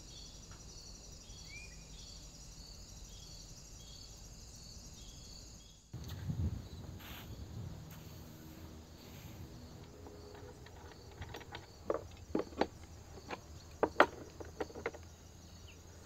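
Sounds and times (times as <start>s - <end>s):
aerosol spray hiss: 6.9s - 9.4s
handling noise: 9.6s - 15.2s.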